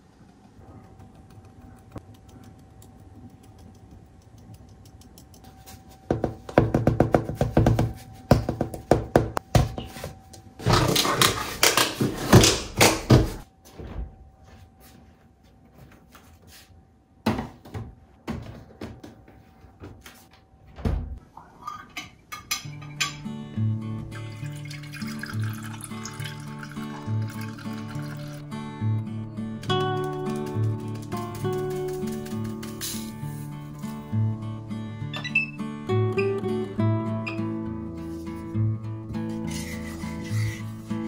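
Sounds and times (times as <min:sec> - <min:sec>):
door shutting with a thud: 0:13.8 - 0:14.2, 0:20.7 - 0:21.2.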